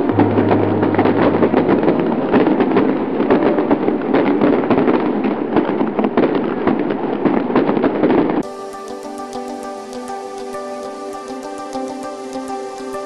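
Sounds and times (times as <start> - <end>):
fireworks crackling: 0.0 - 13.0.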